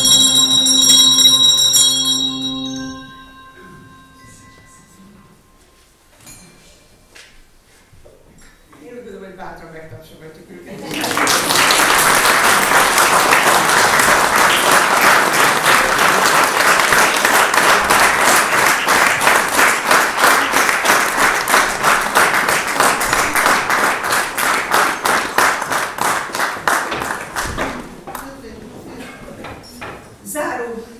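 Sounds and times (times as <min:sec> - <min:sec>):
congregation applauding: 0:10.8 - 0:28.2.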